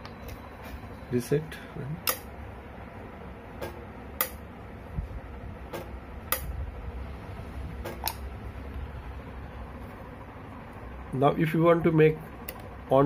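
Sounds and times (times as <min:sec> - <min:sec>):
air valve clicks: 0:02.0 - 0:02.3, 0:05.8 - 0:06.5.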